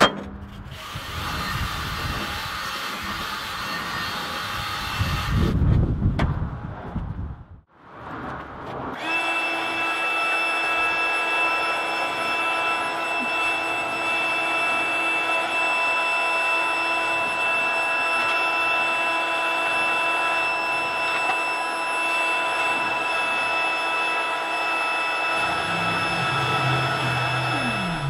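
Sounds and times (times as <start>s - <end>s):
blower motor whine: 0.6s - 5.7s, 9.0s - 28.0s
deeper hum: 25.2s - 28.0s.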